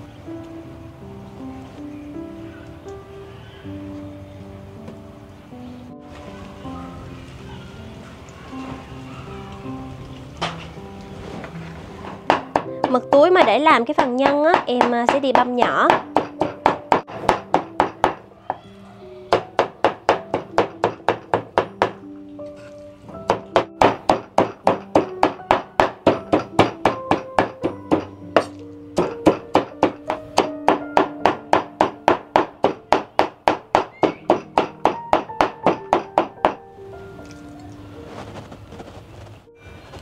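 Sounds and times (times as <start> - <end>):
background music: 0.0 - 40.0
cleaver chopping on wooden board: 12.3 - 18.2, 23.3 - 36.6.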